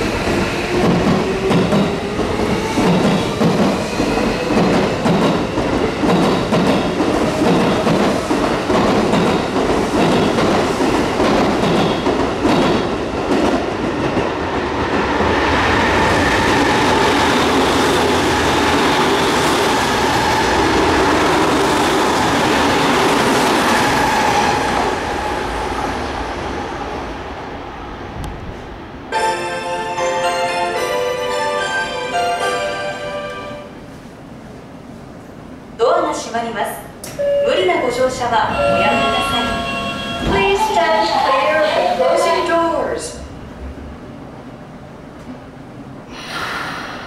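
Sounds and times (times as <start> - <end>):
train wheels clicking over rail joints: 0.7 - 13.6.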